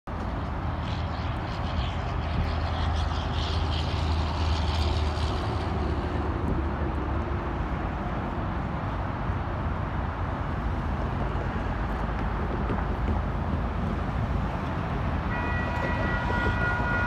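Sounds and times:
distant diesel locomotives rumbling: 0.1s - 17.0s
highway traffic noise: 0.1s - 17.0s.

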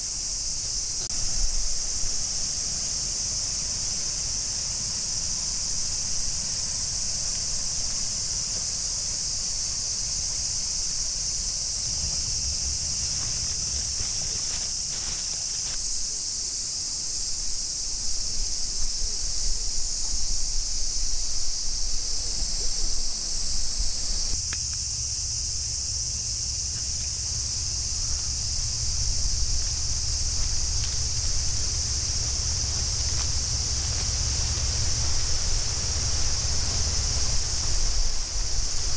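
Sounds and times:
cicadas buzzing: 0.0s - 38.9s
low microphone rumble: 11.2s - 15.2s, 27.2s - 38.9s.

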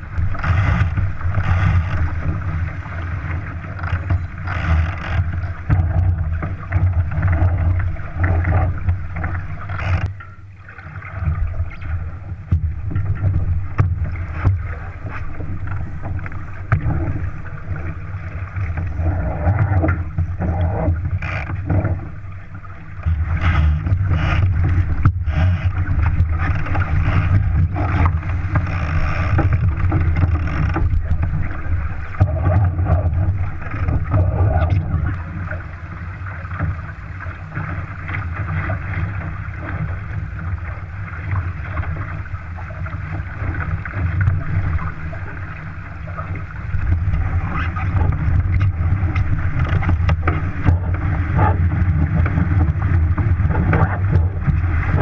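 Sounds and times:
water splashing along hull: 0.0s - 55.0s
wind buffeting microphone: 46.4s - 55.0s.

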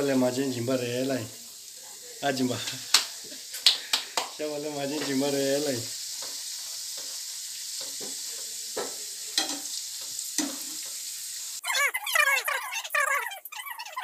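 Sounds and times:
food deep-frying in oil: 0.0s - 13.8s
metal skimmer tapping pan: 8.8s - 9.7s.

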